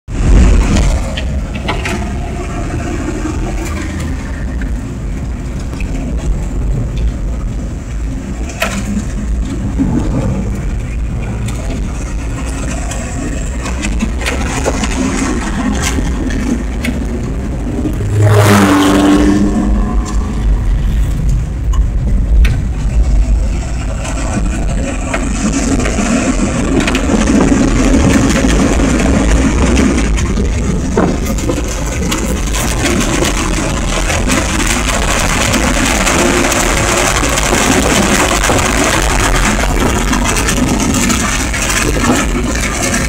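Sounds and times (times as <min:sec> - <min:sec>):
car engine and road noise: 0:00.0 - 0:43.0.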